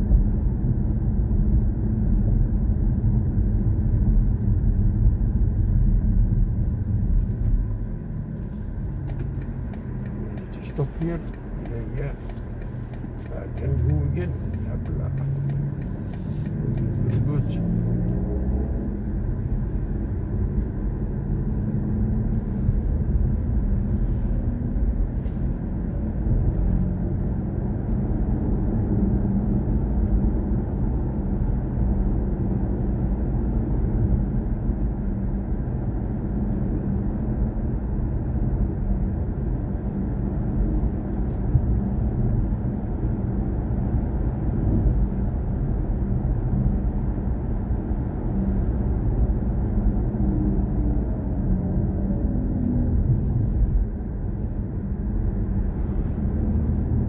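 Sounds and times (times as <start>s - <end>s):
tyre and road rumble: 5.3s - 31.4s, 44.4s - 57.0s.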